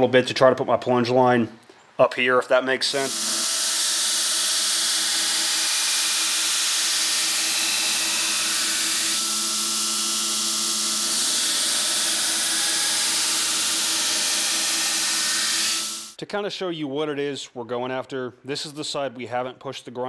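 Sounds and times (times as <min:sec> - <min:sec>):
belt grinder grinding steel: 0:03.0 - 0:16.2.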